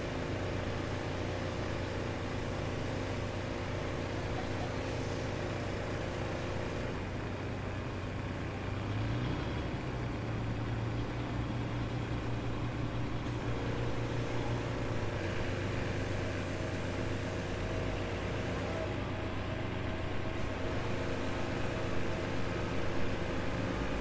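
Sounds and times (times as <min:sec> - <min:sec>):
boat engine humming: 0:10.4 - 0:24.0.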